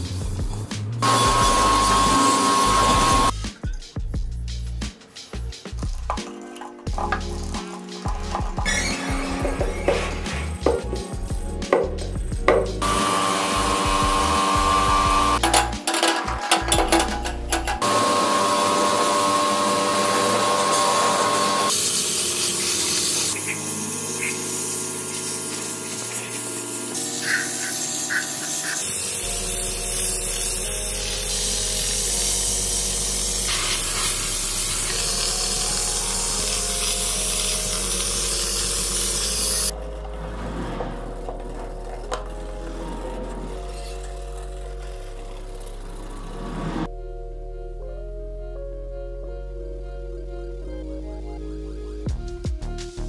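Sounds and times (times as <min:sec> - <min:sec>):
sandblasting gun hissing: 0:01.0 - 0:03.4, 0:07.0 - 0:15.6, 0:16.6 - 0:39.8.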